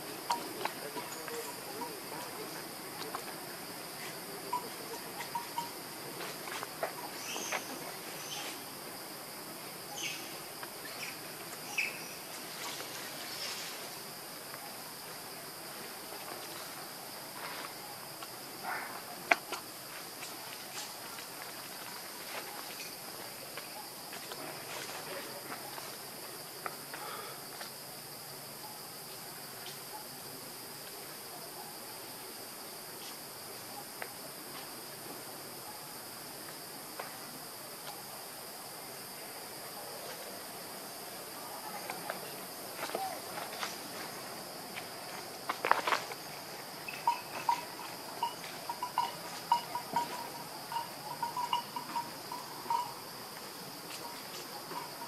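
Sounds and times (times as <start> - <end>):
insect chorus: 0.0 - 55.0.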